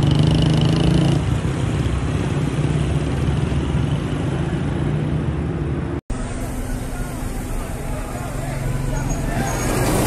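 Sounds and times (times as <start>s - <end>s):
motorcycle engine: 0.0s - 4.4s
street traffic engines humming: 0.0s - 10.0s.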